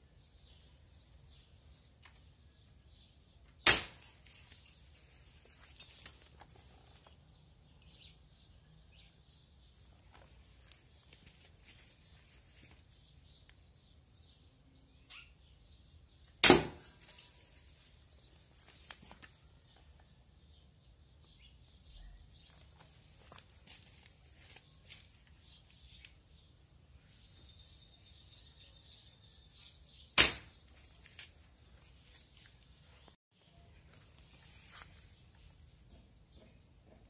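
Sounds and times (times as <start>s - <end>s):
air rifle shot crack: 16.4s - 16.9s, 30.2s - 30.6s.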